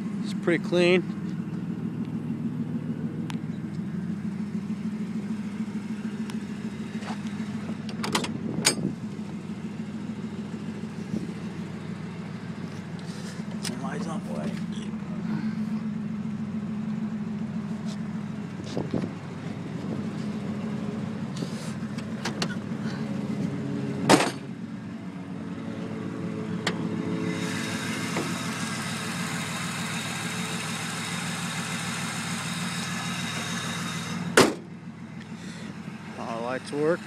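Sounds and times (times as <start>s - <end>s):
car engine idling: 0.0s - 37.0s
car door slam: 24.0s - 24.5s, 34.3s - 34.7s
sharp thump: 24.0s - 24.5s, 34.4s - 34.7s.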